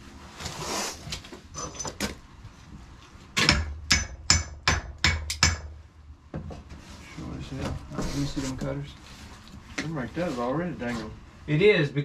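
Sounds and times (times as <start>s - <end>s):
hammer striking metal: 3.4s - 5.8s.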